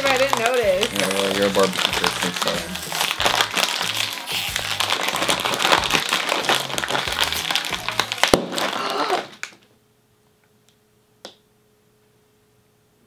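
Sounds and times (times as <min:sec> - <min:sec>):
background music: 0:00.0 - 0:08.4
bag bursting pop: 0:00.0 - 0:09.6
chip bag crinkling: 0:00.0 - 0:09.6.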